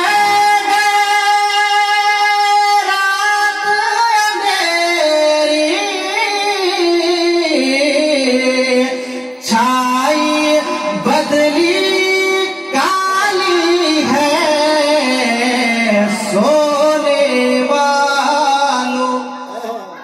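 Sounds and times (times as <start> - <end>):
man singing long held notes: 0.0 - 20.0.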